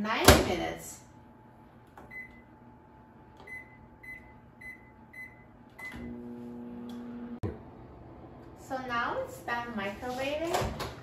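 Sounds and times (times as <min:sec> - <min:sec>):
microwave humming: 0:01.2 - 0:09.7
microwave keypad beeping: 0:02.1 - 0:02.5, 0:03.4 - 0:06.2.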